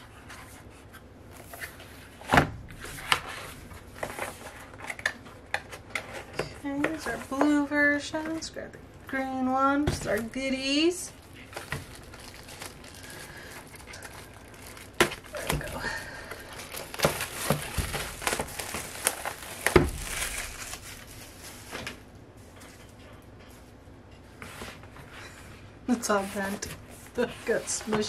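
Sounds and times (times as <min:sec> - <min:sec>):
packaging crinkling: 0:11.1 - 0:22.1.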